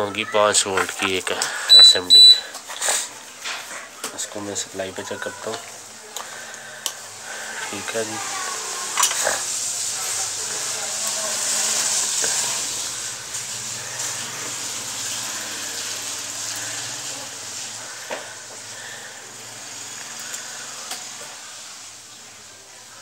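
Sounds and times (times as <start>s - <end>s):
steady high hiss: 4.2s - 23.0s.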